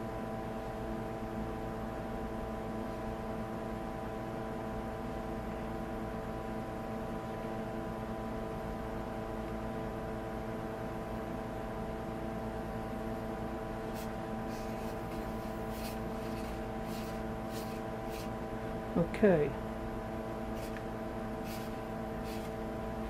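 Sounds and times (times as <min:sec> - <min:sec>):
electric motor hum: 0:13.8 - 0:18.9, 0:20.3 - 0:23.0
pencil scratching on wood: 0:13.9 - 0:18.3, 0:20.6 - 0:20.8, 0:21.4 - 0:22.6.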